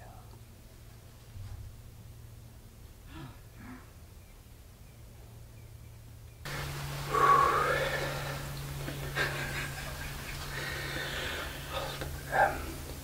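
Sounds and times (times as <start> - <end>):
low steady hum: 0.0 - 13.0
man whispering: 11.6 - 12.9.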